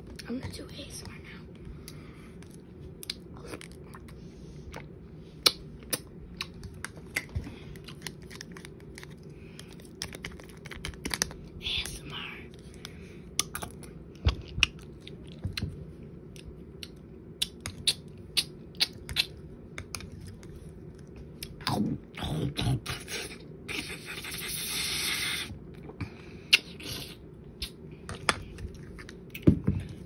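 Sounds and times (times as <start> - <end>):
wet mouth smacking and chewing: 2.4 - 11.3, 16.3 - 21.6.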